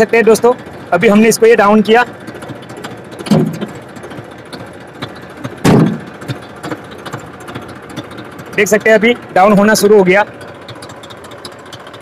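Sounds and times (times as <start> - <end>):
tractor diesel engine idling: 0.0 - 12.0
loud short thump: 3.3 - 3.8, 5.6 - 6.1.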